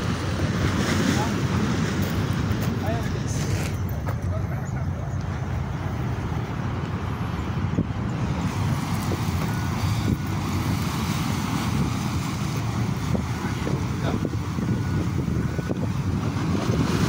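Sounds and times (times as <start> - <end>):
surf breaking against rocks: 0.0 - 3.8
wind buffeting microphone: 0.0 - 17.0.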